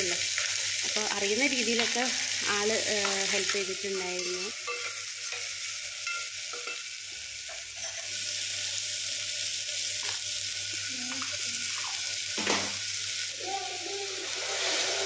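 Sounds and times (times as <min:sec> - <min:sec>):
food sizzling in oil: 0:00.0 - 0:15.0
spoon stirring and knocking pot: 0:03.0 - 0:06.8.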